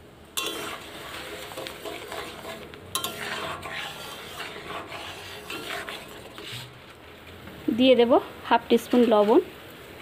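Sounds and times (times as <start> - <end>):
metal spoon scraping a pan: 0.4 - 7.0.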